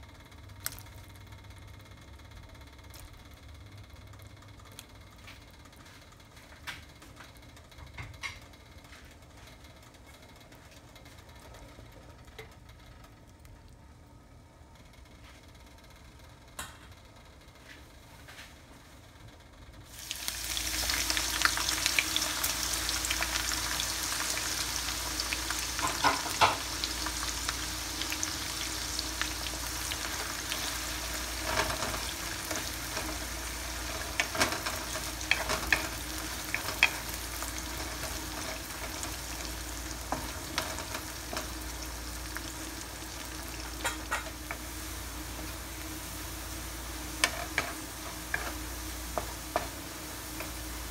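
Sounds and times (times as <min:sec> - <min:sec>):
shallots sizzling in hot oil: 0:19.9 - 0:50.9
wooden spatula stirring: 0:30.6 - 0:41.5.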